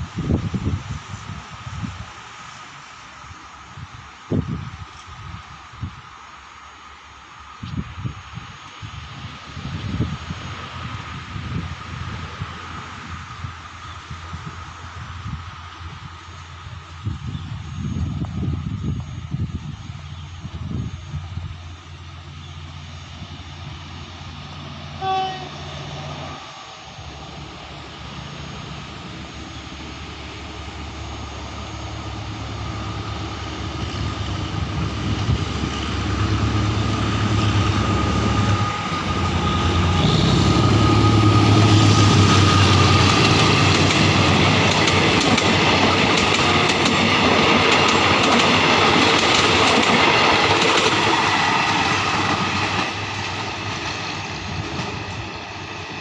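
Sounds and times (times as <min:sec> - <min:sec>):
diesel locomotive engine: 0:00.0 - 0:56.0
locomotive horn blast: 0:25.0 - 0:26.0, 0:36.8 - 0:43.2
train wheels clacking over rail joints: 0:42.2 - 0:56.0.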